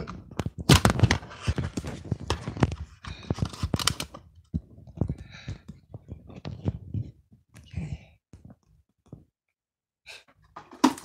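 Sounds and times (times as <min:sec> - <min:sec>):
camera handling clicks and rustling: 0:00.4 - 0:04.2.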